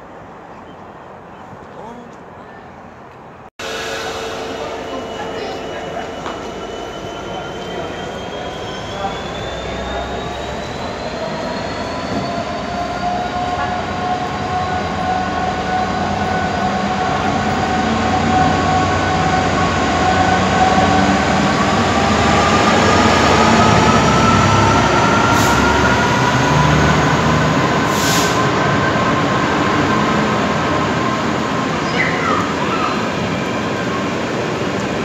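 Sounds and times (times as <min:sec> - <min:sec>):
locomotive engines rumbling: 0:01.6 - 0:35.0
rising whine: 0:03.6 - 0:27.9.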